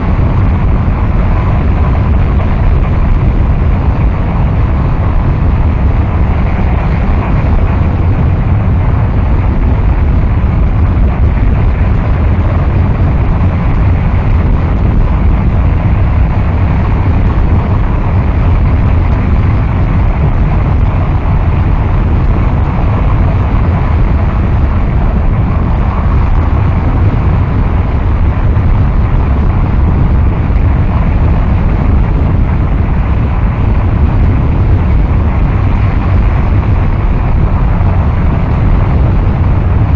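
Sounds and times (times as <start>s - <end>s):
rumbling static noise: 0.0s - 39.9s.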